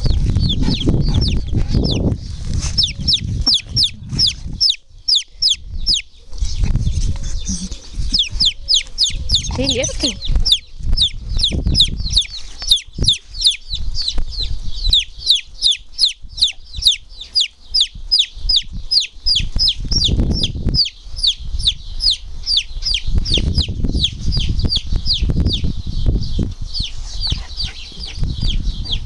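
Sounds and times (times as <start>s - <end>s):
chick peeping loudly: 0.0s - 29.0s.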